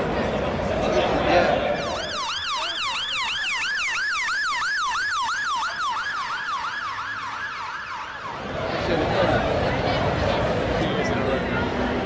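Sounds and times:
ambulance siren yelping: 0:01.8 - 0:08.8.

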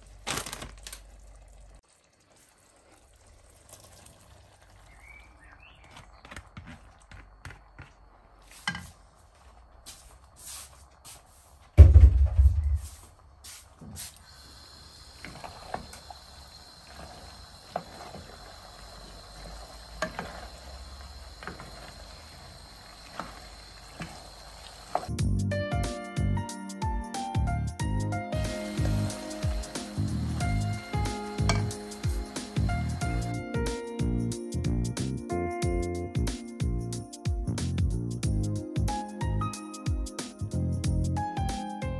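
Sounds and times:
loud low thump: 0:11.8 - 0:12.9.

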